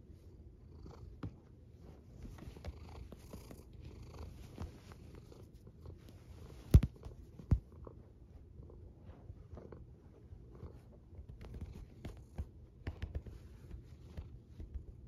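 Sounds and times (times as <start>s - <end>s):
cat purring: 0.2s - 15.0s.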